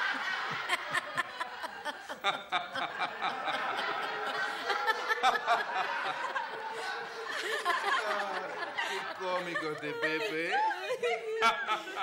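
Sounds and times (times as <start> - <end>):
audience laughing: 0.0 - 12.0.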